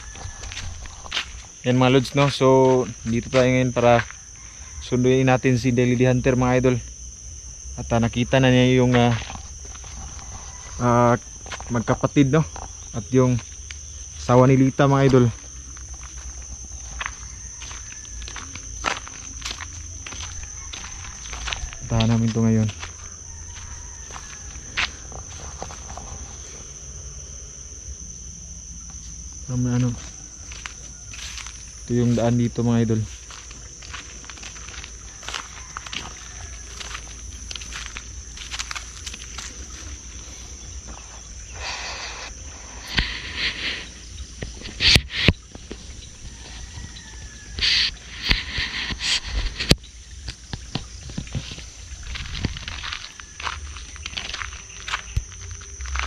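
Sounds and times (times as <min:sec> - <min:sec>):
insects trilling: 0:00.0 - 0:56.0
hissing noise bursts: 0:41.5 - 0:45.4.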